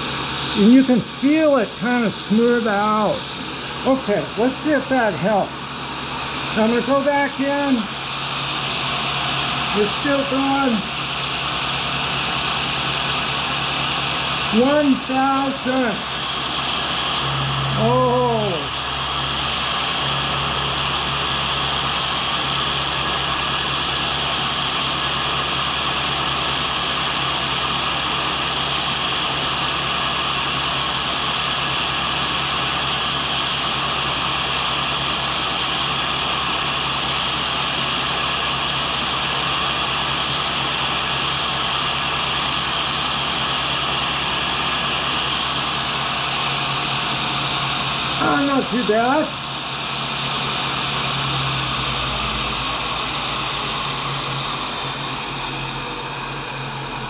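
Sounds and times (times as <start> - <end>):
grinding wheel hiss: 0.0 - 57.0
low motor hum: 15.9 - 28.7, 49.9 - 57.0.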